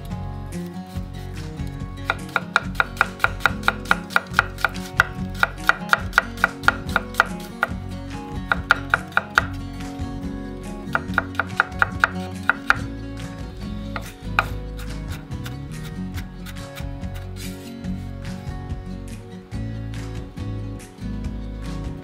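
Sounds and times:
knife tapping on wooden board: 0:02.1 - 0:07.8, 0:08.4 - 0:09.6, 0:10.9 - 0:12.9, 0:14.0 - 0:14.6.

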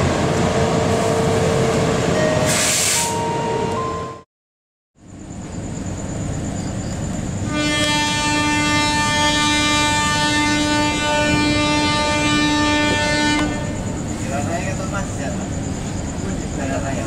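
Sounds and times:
diesel train noise: 0:00.0 - 0:04.2, 0:05.0 - 0:17.0
locomotive air horn blast: 0:02.4 - 0:03.4, 0:07.5 - 0:13.8.

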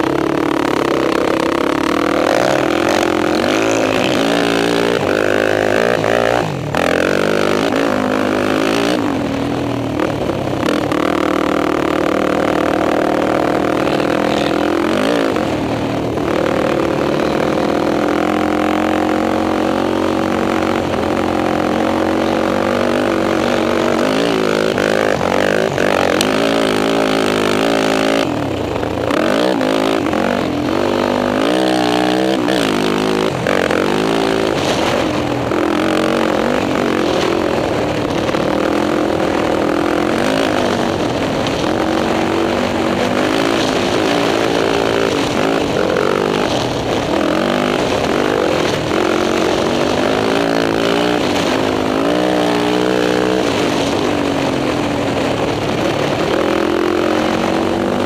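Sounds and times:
quad engine revving: 0:00.0 - 0:58.0.

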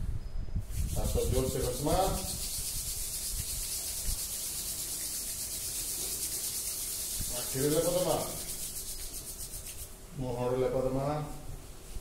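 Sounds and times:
scratchy hiss: 0:00.6 - 0:12.0
person speaking: 0:00.9 - 0:02.5, 0:07.2 - 0:08.6.

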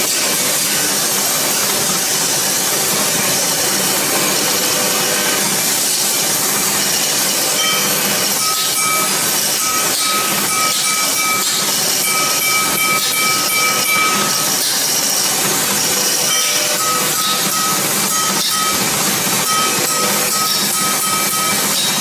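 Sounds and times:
metal lathe cutting hiss: 0:00.0 - 0:22.0.

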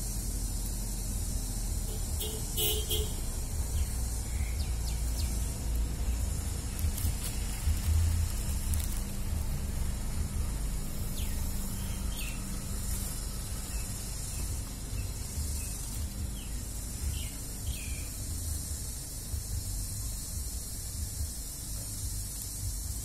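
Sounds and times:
low rumble and hiss: 0:00.0 - 0:23.0.

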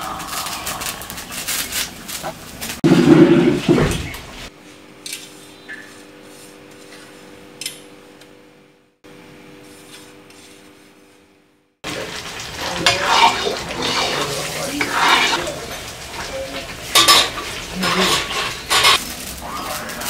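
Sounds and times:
hand scraping flour on metal plate: 0:05.3 - 0:07.4, 0:09.6 - 0:11.3, 0:12.8 - 0:15.5, 0:17.0 - 0:19.0.

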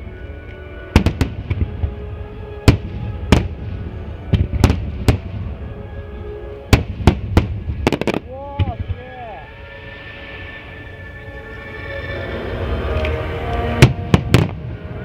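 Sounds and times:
music: 0:00.0 - 0:15.0
firework shells booming: 0:06.7 - 0:08.9.

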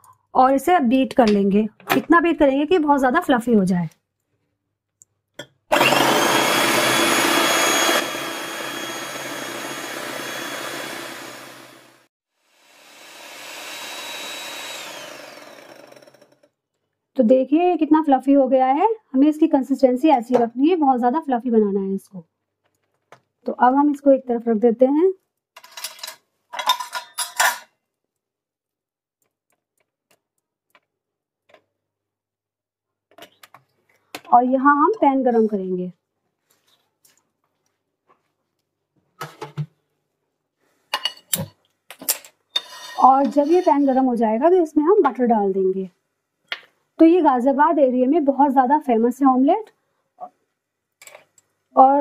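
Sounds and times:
electric hand mixer whirring: 0:05.7 - 0:16.4, 0:43.1 - 0:43.9.

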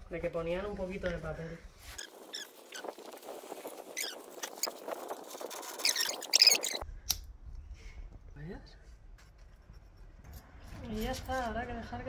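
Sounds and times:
paper crumpling and rustling: 0:01.9 - 0:06.8.

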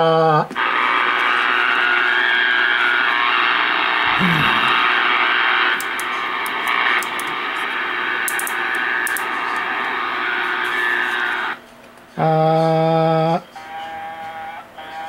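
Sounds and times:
radio static: 0:00.4 - 0:11.6.

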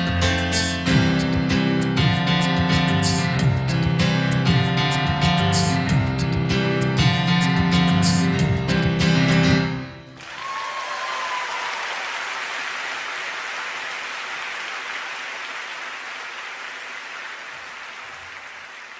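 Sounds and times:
audience applause: 0:10.2 - 0:18.9.

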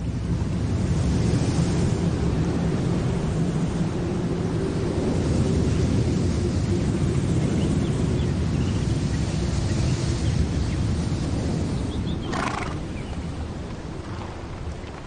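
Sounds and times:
horses: 0:12.2 - 0:15.0.

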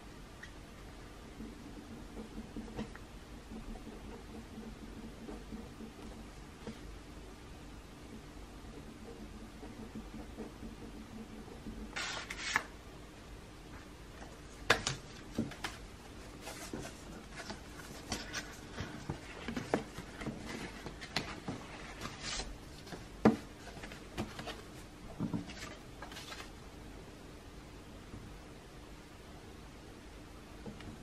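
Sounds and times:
paper rustling and sliding: 0:11.9 - 0:12.7, 0:15.5 - 0:23.0, 0:23.6 - 0:26.6.

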